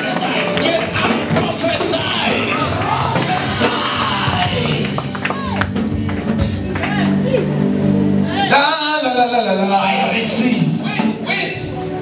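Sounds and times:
singing voices: 0:00.0 - 0:10.7
gospel praise music: 0:00.0 - 0:12.0
bass line: 0:01.0 - 0:10.8.

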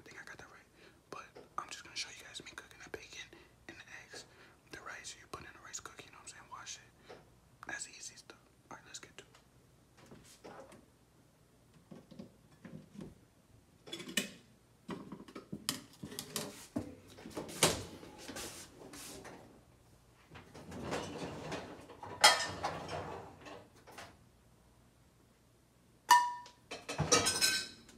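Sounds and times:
kitchen items knocking and clattering: 0:13.8 - 0:17.8, 0:20.4 - 0:24.1, 0:26.1 - 0:27.9.

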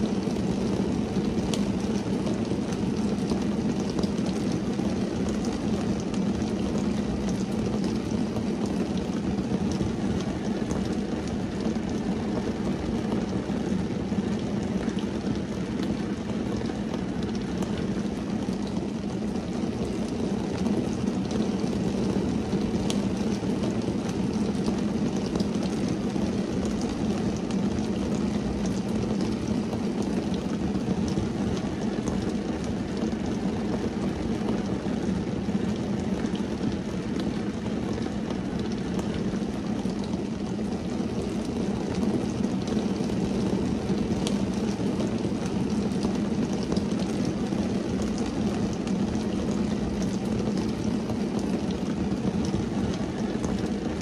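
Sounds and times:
rain drumming on a car: 0:00.0 - 0:54.0
sharp raindrop taps: 0:14.3 - 0:35.1, 0:35.8 - 0:43.6, 0:44.2 - 0:54.0.

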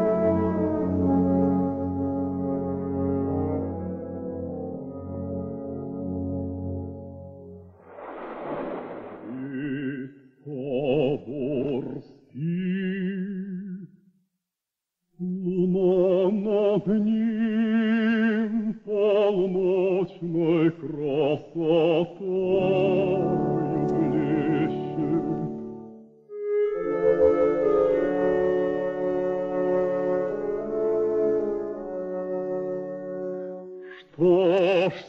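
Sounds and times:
operatic singing with vibrato: 0:09.2 - 0:13.9, 0:15.2 - 0:25.5, 0:33.8 - 0:35.0
backing music: 0:22.6 - 0:33.9.

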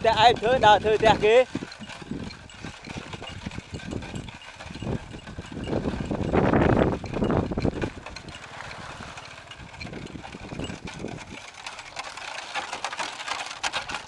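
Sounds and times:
wooden cart rattling: 0:00.0 - 0:14.0.

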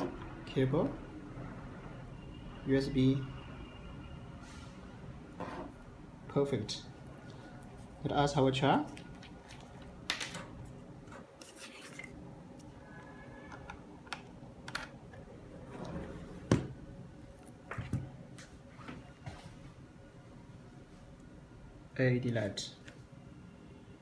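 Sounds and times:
small items rustling and scraping: 0:11.1 - 0:12.2.

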